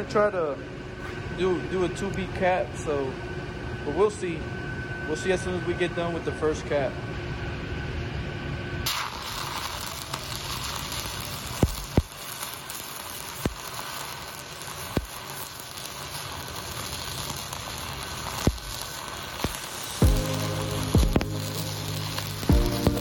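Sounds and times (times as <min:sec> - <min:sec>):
welding arc crackling and sizzling: 0:08.8 - 0:23.0
sharp pops: 0:11.5 - 0:14.2, 0:14.8 - 0:15.5, 0:18.3 - 0:23.0.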